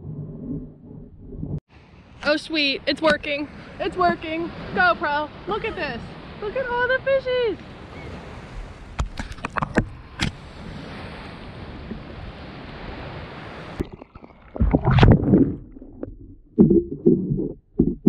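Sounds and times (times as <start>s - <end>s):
underwater sloshing and thumps: 0.0s - 1.6s, 8.6s - 10.4s, 11.6s - 18.0s
water lapping: 1.8s - 17.4s.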